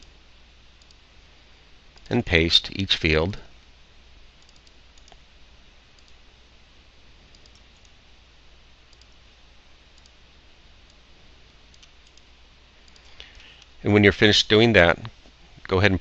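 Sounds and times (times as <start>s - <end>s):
low hum and hiss: 0.0s - 16.0s
computer mouse clicks: 0.8s - 1.0s, 4.4s - 5.2s, 6.0s - 6.2s, 7.3s - 8.0s, 8.9s - 9.2s, 10.0s - 10.2s, 10.9s - 12.3s, 12.9s - 13.7s.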